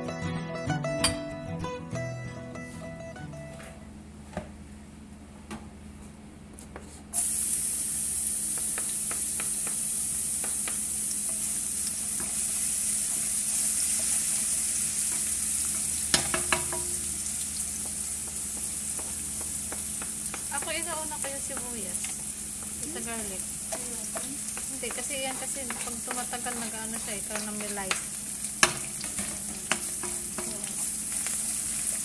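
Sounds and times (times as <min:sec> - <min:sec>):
aromatics sizzling in butter: 0:07.2 - 0:32.0
utensil stirring in wok: 0:07.2 - 0:32.0
utensil clicking against pan: 0:23.7 - 0:30.9.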